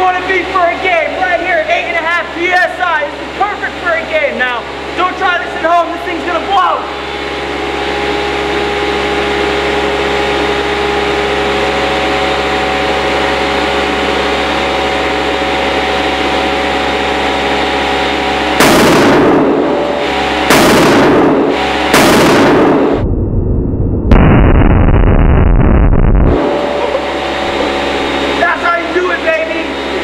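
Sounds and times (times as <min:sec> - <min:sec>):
air pump running: 0:00.0 - 0:22.9, 0:26.3 - 0:30.0
ball bursting with loud bang: 0:18.6 - 0:23.1, 0:24.1 - 0:26.6.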